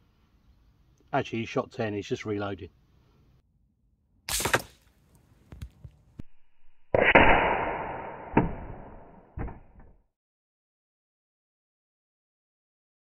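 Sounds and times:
rifle shots: 4.3 - 4.8, 7.0 - 9.4
bullet striking steel target: 4.3 - 4.9, 6.9 - 10.0.

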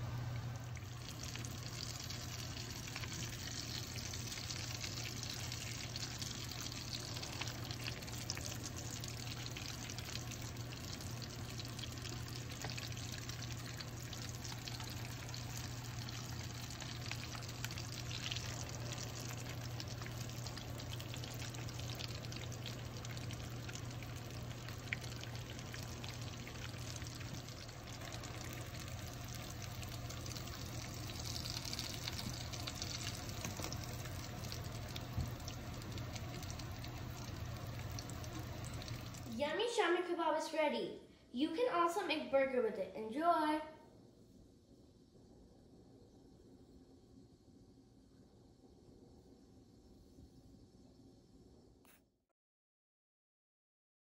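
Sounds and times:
patties sizzling in oil: 0.0 - 39.8
steady low hum: 0.0 - 43.0, 43.6 - 51.9.

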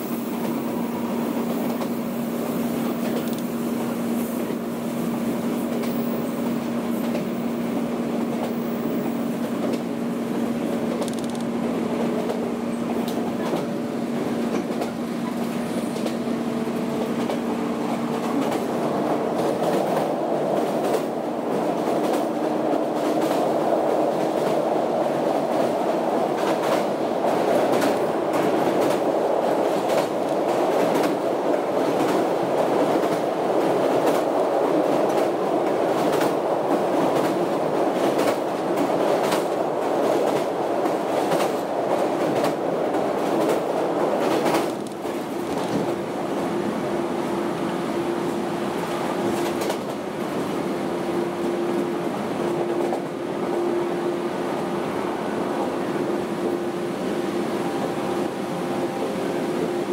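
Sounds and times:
train motor rumble and hum: 0.0 - 23.9, 53.4 - 59.9.

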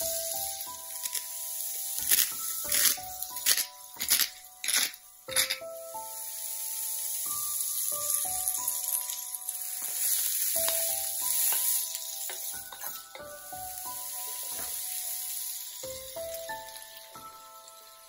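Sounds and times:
vegetables sizzling in a frying pan: 0.0 - 18.0.

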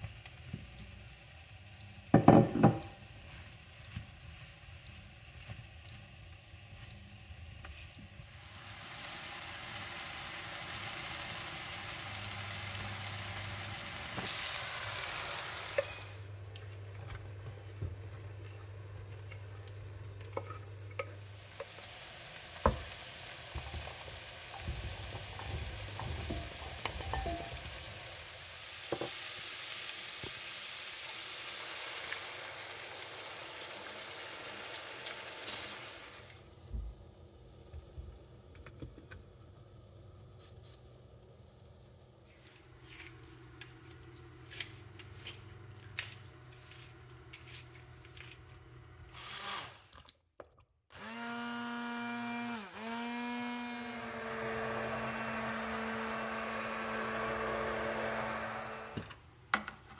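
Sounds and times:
mushrooms sizzling in pan: 0.0 - 20.0, 20.9 - 36.3.

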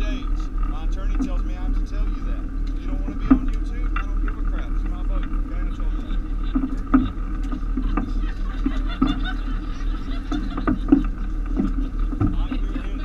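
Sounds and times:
boat engine droning: 0.0 - 13.0
passengers chattering: 0.0 - 13.0.

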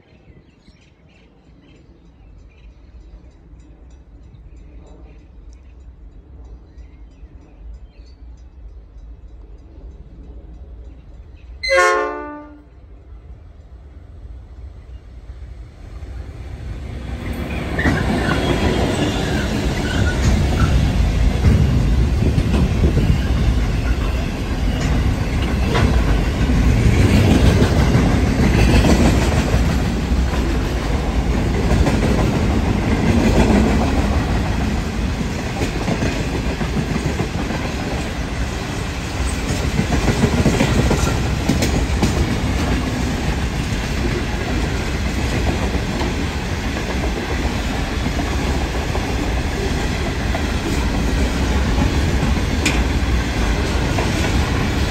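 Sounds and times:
freight train rumbling past: 0.1 - 54.9
wheels clicking over rail joints: 17.2 - 38.5, 39.2 - 54.9.

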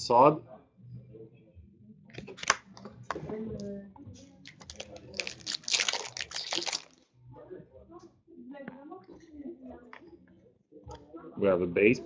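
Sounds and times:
cards shuffled by hand: 2.2 - 2.8, 4.5 - 7.0
card wrapper tearing and crinkling: 4.5 - 7.0.

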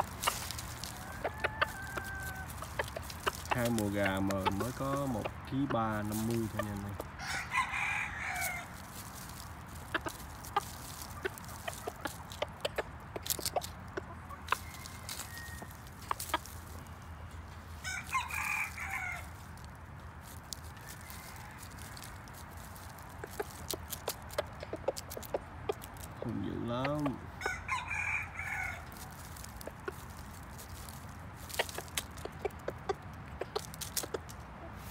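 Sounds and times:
clicks and rustles in dry leaves: 0.0 - 34.9
rooster crowing: 0.8 - 2.6, 7.2 - 8.7, 14.6 - 15.8, 17.8 - 19.3, 21.0 - 22.2, 27.4 - 28.9.

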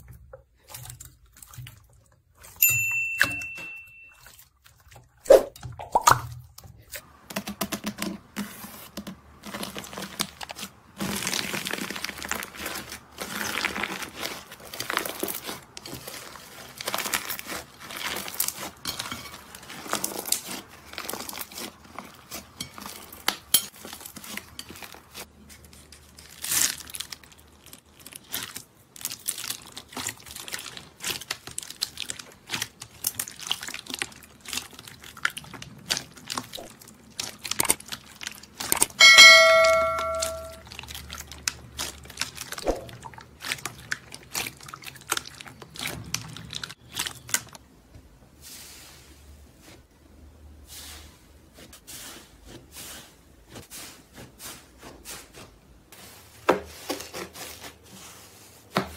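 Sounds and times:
bell-like ding: 2.6 - 4.2, 39.0 - 40.6
slime crackling and popping: 9.4 - 25.3, 26.0 - 39.0.

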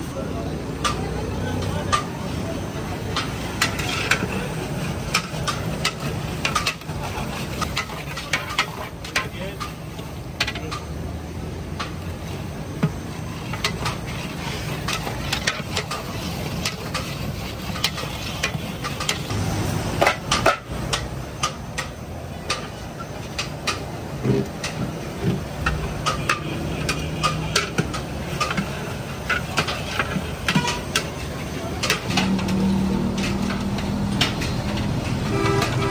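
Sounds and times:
metal utensils clinking on cookware: 3.0 - 9.8, 25.5 - 35.9.

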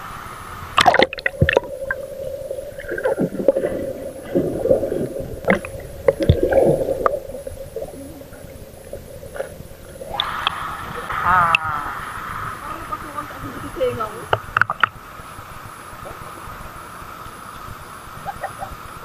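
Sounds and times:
steady low hum: 0.0 - 19.0
muffled underwater gurgling and bubbling: 0.8 - 14.9.

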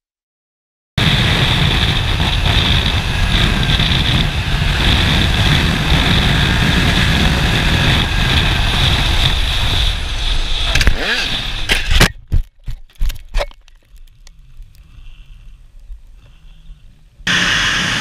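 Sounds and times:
motorcycle engine running: 1.0 - 11.9
wind noise: 1.0 - 18.0.

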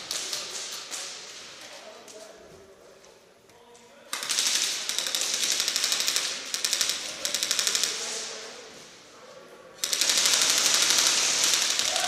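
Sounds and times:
airsoft guns firing full auto: 4.1 - 8.2, 9.8 - 12.0.

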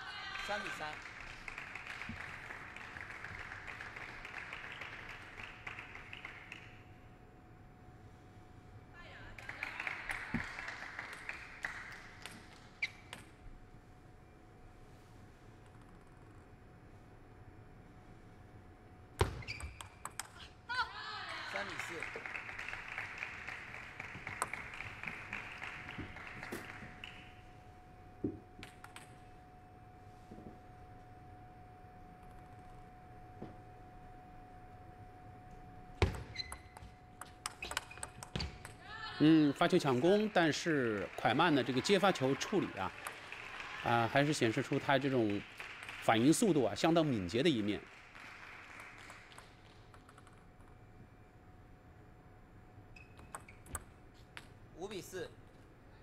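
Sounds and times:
audience applauding: 0.4 - 6.8, 9.4 - 12.2, 21.5 - 27.4, 39.4 - 49.6
faint steady tone: 26.6 - 40.0.

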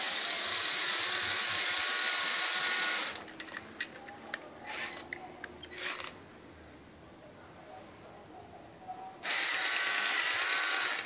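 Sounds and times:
toy motors and gears whirring: 0.0 - 3.6, 4.6 - 6.2, 9.2 - 11.0.

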